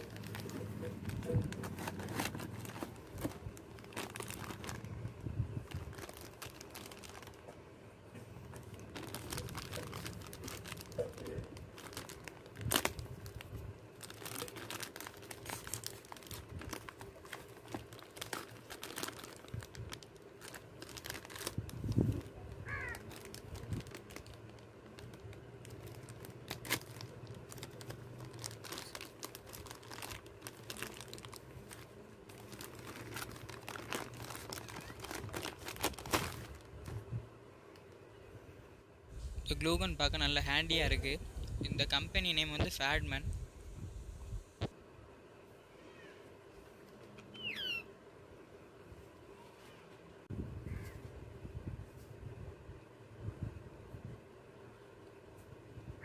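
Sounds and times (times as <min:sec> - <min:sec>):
plastic bag crinkling: 0:00.0 - 0:07.6, 0:08.4 - 0:36.9.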